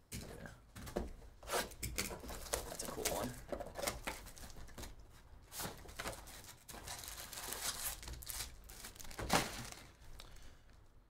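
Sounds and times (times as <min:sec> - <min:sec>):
box and foil packs handled: 0:01.5 - 0:10.5
plastic wrap crinkling: 0:02.2 - 0:10.4
plastic shrink wrap tearing: 0:05.8 - 0:10.3.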